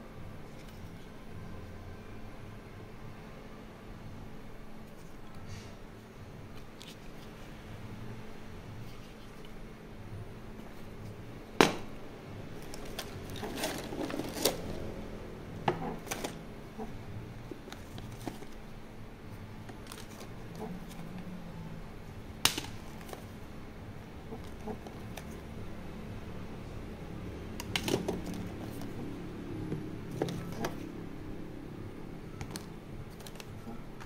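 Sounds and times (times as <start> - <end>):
cards and small objects clattering: 12.6 - 14.7.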